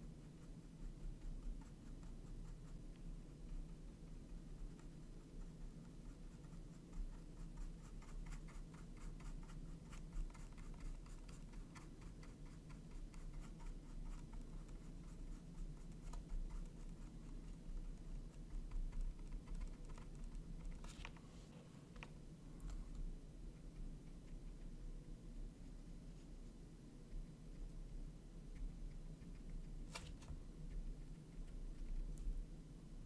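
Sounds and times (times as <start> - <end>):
paintbrush scratching on canvas: 0.0 - 21.9
low steady hum: 0.0 - 33.0.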